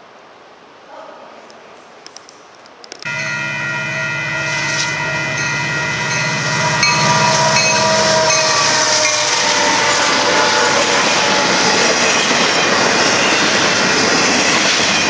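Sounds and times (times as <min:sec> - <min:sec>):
locomotive air horn chord: 0:03.1 - 0:11.8
diesel engines throbbing: 0:03.1 - 0:14.6
train rushing past: 0:03.1 - 0:15.0.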